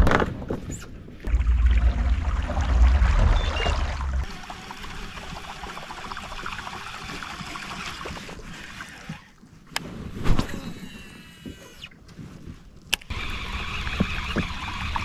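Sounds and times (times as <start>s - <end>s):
water trickling and gurgling: 1.2s - 9.4s.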